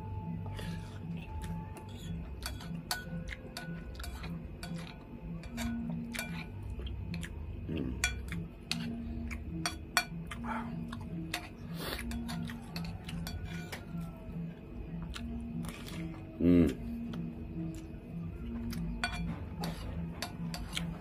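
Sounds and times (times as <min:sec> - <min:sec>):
chewing: 0:00.4 - 0:21.0
spoon clinking against a bowl: 0:00.5 - 0:07.3, 0:08.0 - 0:14.1, 0:18.7 - 0:21.0.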